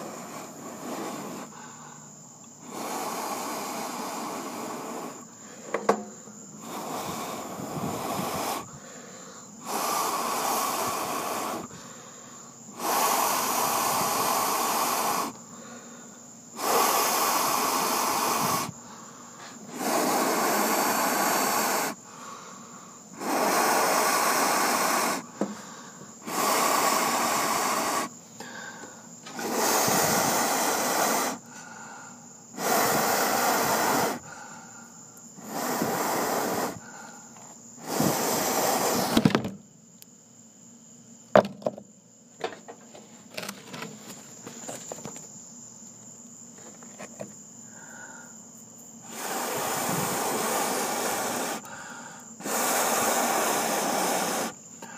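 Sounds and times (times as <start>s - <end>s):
person blowing onto embers: 0.0s - 5.5s, 6.6s - 12.1s, 12.7s - 15.8s, 16.5s - 39.4s, 49.0s - 54.9s.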